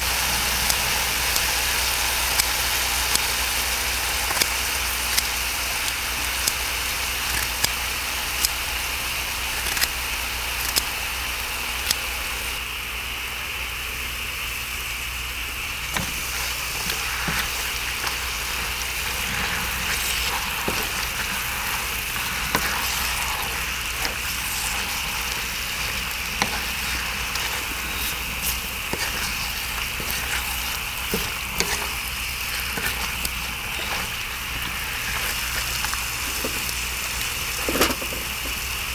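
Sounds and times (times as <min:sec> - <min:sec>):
meat sizzling on metal lid: 0:00.0 - 0:12.6, 0:15.4 - 0:38.9
scissors snipping: 0:10.6 - 0:10.9
spatula scraping food on lid: 0:15.8 - 0:36.7.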